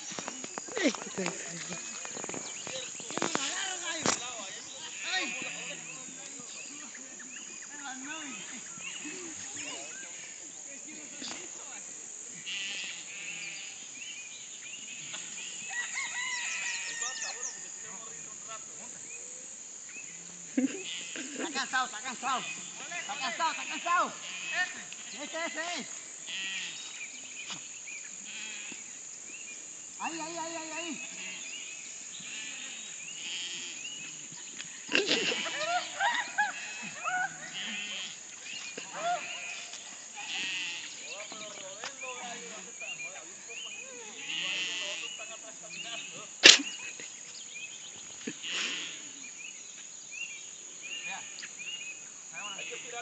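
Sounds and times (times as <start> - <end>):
high-pitched hiss: 0.0 - 53.0
high-pitched insect chorus: 0.0 - 53.0
short insect chirps: 0.0 - 53.0
goat bleating: 12.4 - 13.7, 20.6 - 21.6, 23.0 - 25.6, 26.3 - 26.8, 32.2 - 33.8, 36.5 - 38.2, 38.8 - 41.0, 44.1 - 45.1.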